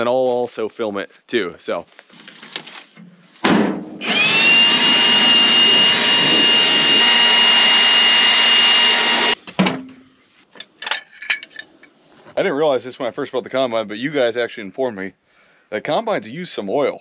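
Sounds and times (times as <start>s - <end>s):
sharp knock: 3.4s - 4.0s
leaf blower rushing air: 4.0s - 9.4s.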